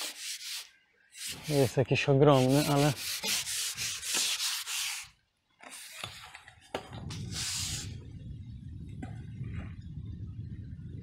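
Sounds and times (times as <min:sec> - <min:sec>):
steady low rumble: 0:06.9 - 0:11.0
rubbing friction noise: 0:07.0 - 0:08.0.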